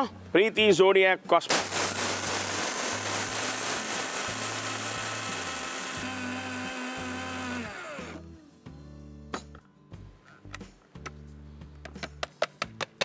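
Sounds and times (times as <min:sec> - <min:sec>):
mixer grinder grinding: 0:01.5 - 0:08.3.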